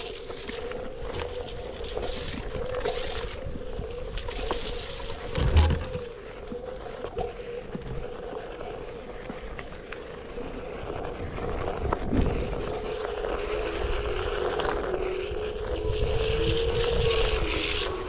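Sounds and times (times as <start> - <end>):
rumble of rolling wheels: 0.0 - 18.0
wind: 0.0 - 18.0
electric board motor whine: 12.4 - 18.0.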